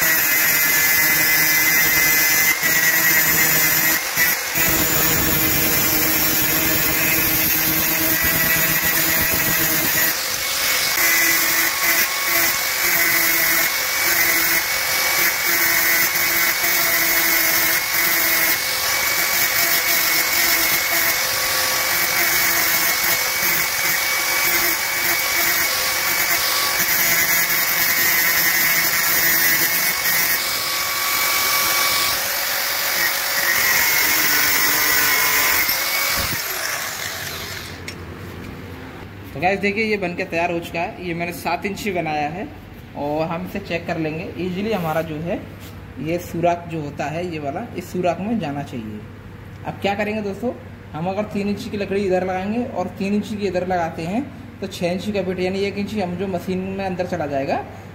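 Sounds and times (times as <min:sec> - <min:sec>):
angle grinder grinding steel: 0:00.0 - 0:38.0
grinder winding down: 0:00.0 - 0:38.0.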